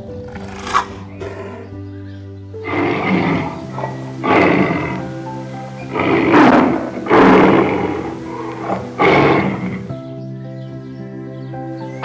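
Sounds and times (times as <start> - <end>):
background music: 0.0 - 12.0
animal rasping calls: 0.2 - 1.8, 2.6 - 10.0.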